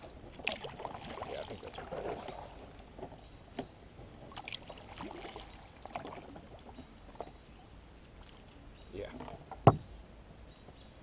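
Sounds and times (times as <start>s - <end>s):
water dripping and trickling: 0.0s - 9.6s
paddle dipping in water: 0.0s - 9.8s
small knocks: 9.1s - 9.9s.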